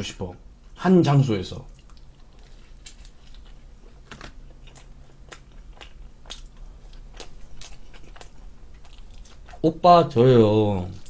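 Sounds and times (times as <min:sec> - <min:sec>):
pizza crust crunching: 0:01.8 - 0:09.7.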